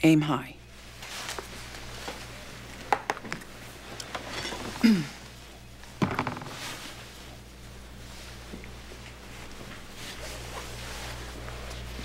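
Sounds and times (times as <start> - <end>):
low steady hum: 0.0 - 12.0
dishes and cutlery clicking: 4.1 - 4.8.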